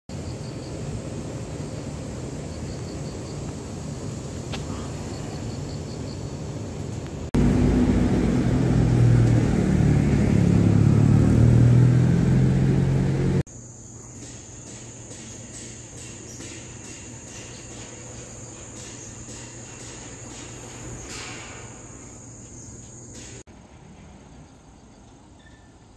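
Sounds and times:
road traffic hum: 0.7s - 13.5s
vehicle engines rumbling: 6.8s - 13.5s.

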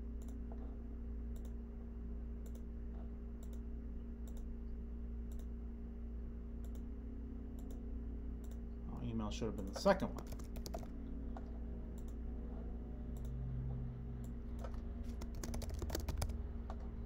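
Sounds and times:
steady electrical hum: 0.0s - 17.0s
faint clicks: 6.6s - 6.8s, 7.6s - 7.8s.

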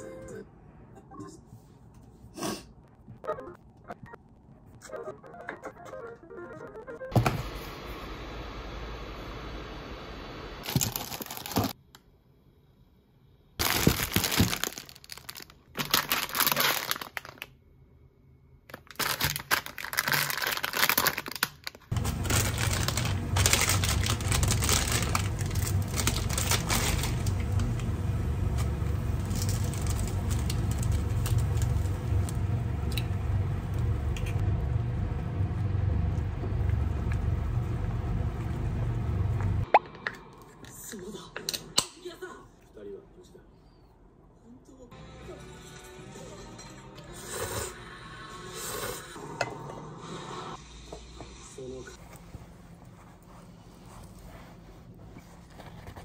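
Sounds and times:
plastic packets crinkling: 10.6s - 11.8s, 13.6s - 17.6s, 18.7s - 27.6s, 29.2s - 32.3s
water boiling in pot: 22.0s - 39.7s.

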